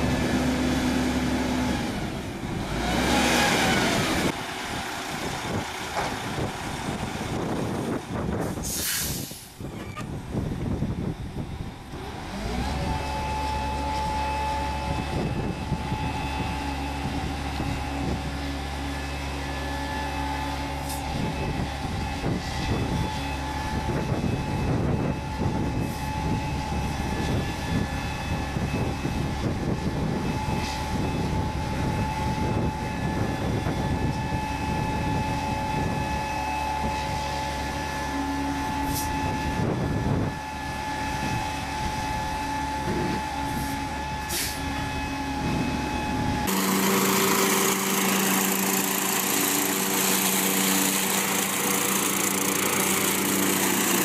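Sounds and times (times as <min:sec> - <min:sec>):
lawn tractor running: 0:00.0 - 0:07.8, 0:44.6 - 0:54.0
diesel truck running: 0:00.0 - 0:54.0
leaf vacuum rushing air: 0:08.4 - 0:09.6, 0:43.4 - 0:54.0
high whine: 0:12.8 - 0:54.0.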